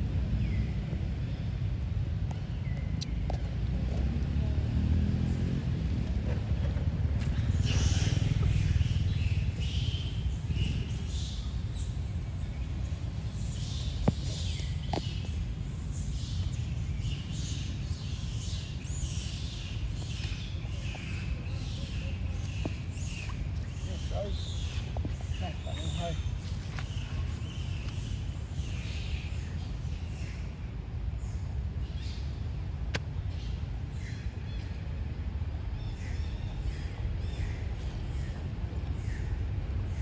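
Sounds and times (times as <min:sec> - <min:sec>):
steady low rumble: 0:00.0 - 0:40.0
high hissing chirps: 0:07.6 - 0:14.8.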